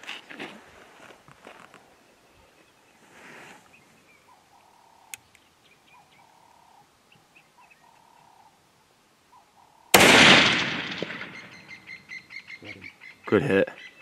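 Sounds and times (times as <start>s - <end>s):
faint bird calls: 1.8s - 10.0s, 11.2s - 14.0s
rifle shot: 9.9s - 11.8s.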